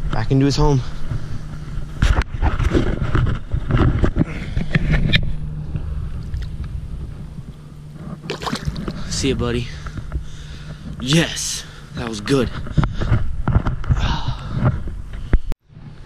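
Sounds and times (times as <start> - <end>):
water movement: 6.0 - 11.1.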